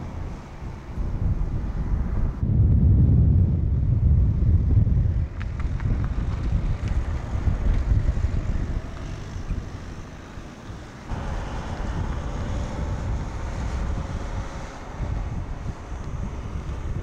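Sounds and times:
wind rumble on microphone: 0.0s - 17.0s
car driving past: 8.2s - 17.0s
steady hum: 11.0s - 17.0s.

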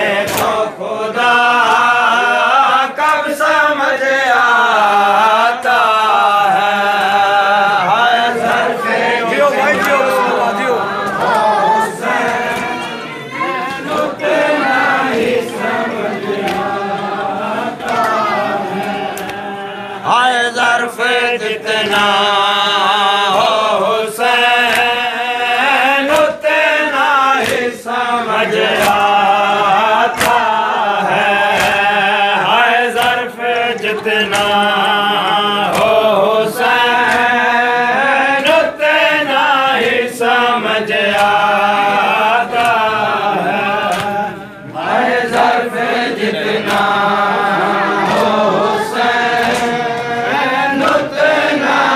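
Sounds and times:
group chanting in unison: 0.0s - 51.9s
chest-beating slaps: 0.1s - 0.7s, 11.0s - 19.5s, 24.6s - 25.1s, 27.3s - 27.8s, 28.5s - 29.3s, 30.1s - 30.7s, 31.3s - 32.1s, 32.9s - 37.6s, 40.9s - 45.7s, 46.3s - 51.5s.

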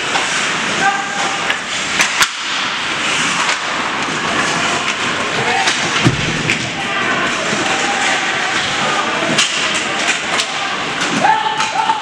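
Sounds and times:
hockey sticks and puck clacking: 0.0s - 12.0s
skates scraping ice: 0.0s - 12.0s
spectators' voices: 0.0s - 12.0s.

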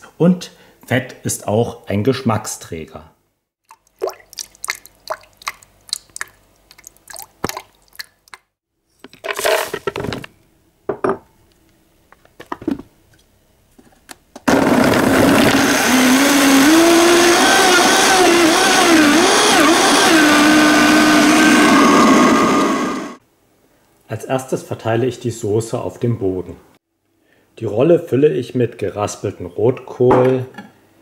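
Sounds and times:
blender running: 14.5s - 23.2s.

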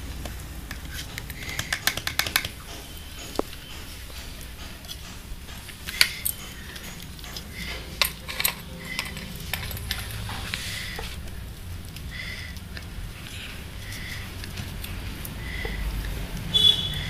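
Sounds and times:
steady low hum: 0.0s - 17.0s
clicks and taps on steel plate: 0.2s - 10.4s.

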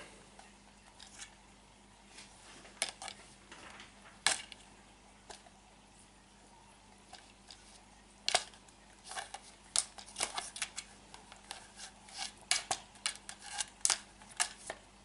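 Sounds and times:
cat clawing plastic toy: 7.1s - 14.8s.

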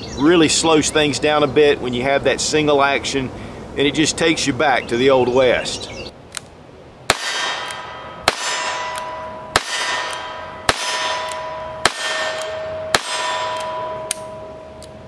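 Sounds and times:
metallic ring of steel target: 7.1s - 15.0s.

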